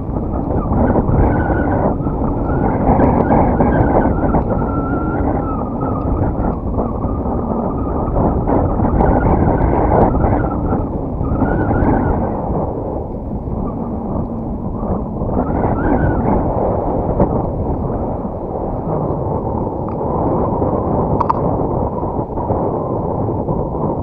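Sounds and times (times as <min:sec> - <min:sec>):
wind buffeting microphone: 0:00.0 - 0:24.0
faint wavering whistle: 0:00.2 - 0:18.2.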